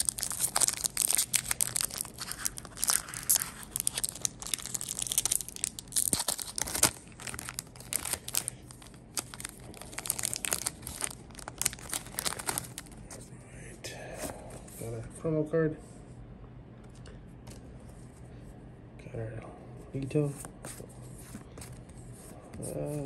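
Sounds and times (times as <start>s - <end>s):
foil wrapper tearing and crinkling: 0.0s - 13.0s.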